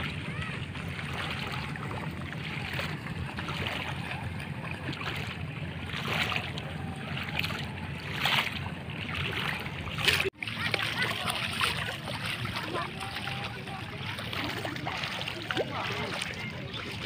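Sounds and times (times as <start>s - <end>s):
feet wading through water: 0.0s - 17.0s.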